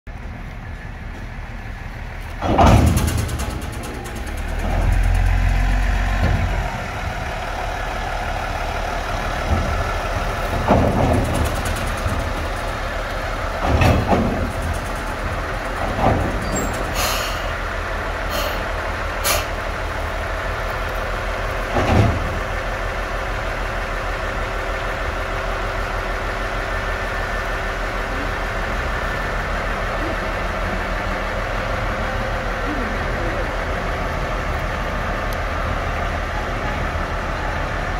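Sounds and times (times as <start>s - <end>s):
deep engine rumble: 0.1s - 37.9s
diesel engine idling: 0.1s - 37.9s
heavy metal clunks: 2.3s - 7.2s, 9.2s - 17.6s, 21.6s - 22.5s.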